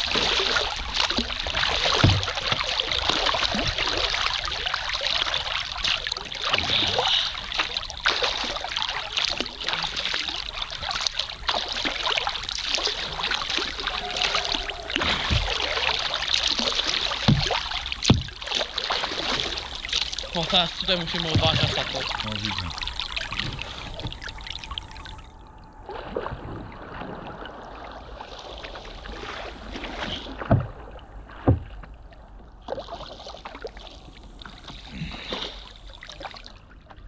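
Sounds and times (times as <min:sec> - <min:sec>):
paddle strokes splashing: 0:00.0 - 0:25.3, 0:25.9 - 0:37.0
water rushing along boat: 0:00.0 - 0:37.0
dull knocks: 0:17.2 - 0:18.4, 0:21.2 - 0:22.2.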